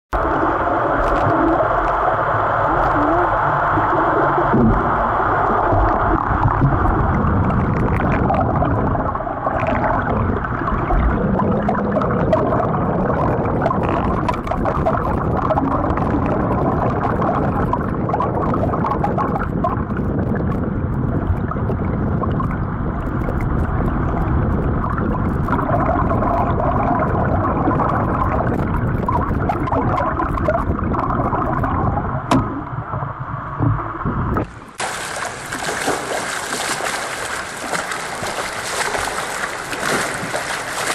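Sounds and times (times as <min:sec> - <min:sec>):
muffled underwater water churning: 0:00.1 - 0:40.9
water splashing: 0:00.2 - 0:20.0, 0:33.6 - 0:40.9.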